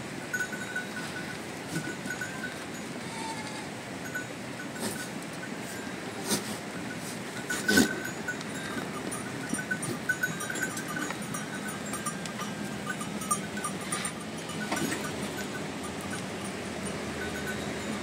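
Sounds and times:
small animal bells tinkling: 0.0 - 18.0
sheep bleat: 2.2 - 3.8.

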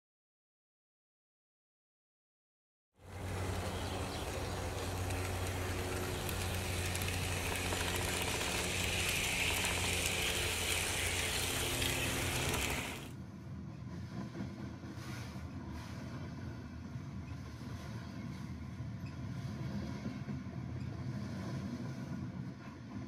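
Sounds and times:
model train motor hum: 3.0 - 13.1
rattle of train wheels: 3.0 - 13.1.

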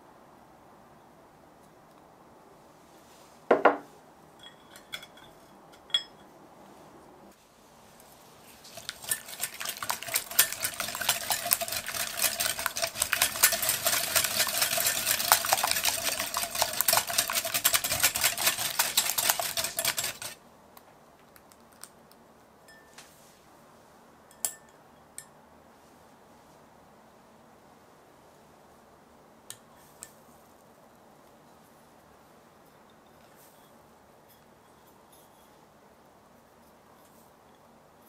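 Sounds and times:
whisk clinking against glass bowl: 8.7 - 20.4.

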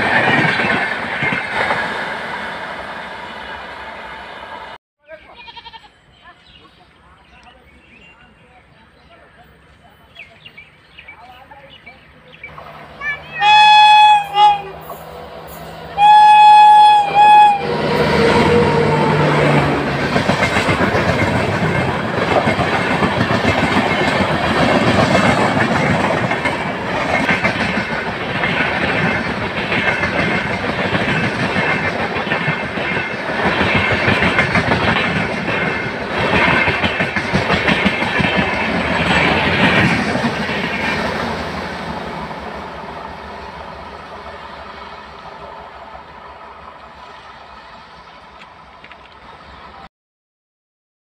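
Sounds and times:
train passing at speed: 0.0 - 4.8, 7.0 - 49.9
train horn: 12.8 - 19.9
wheels clacking over rail joints: 18.4 - 44.4.

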